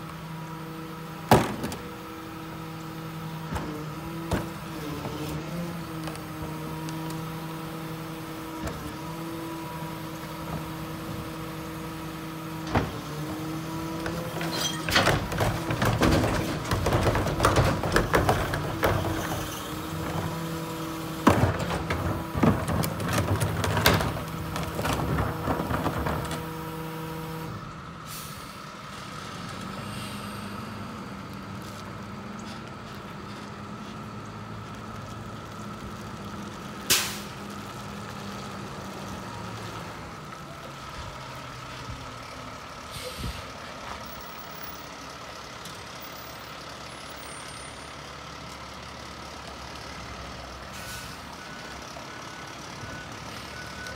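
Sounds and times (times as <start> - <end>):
garbage truck mechanical whine: 0.0 - 53.9
truck engine running low: 0.0 - 53.9
trash and cart clattering: 1.3 - 2.1, 12.5 - 26.7.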